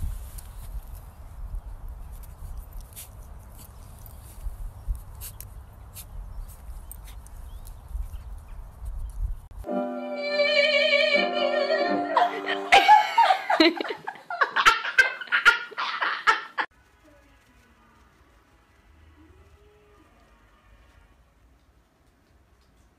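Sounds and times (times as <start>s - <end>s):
piano chords: 9.6s - 12.9s
woman singing operatic high note: 9.7s - 12.8s
woman shrieking laughter: 12.2s - 16.7s.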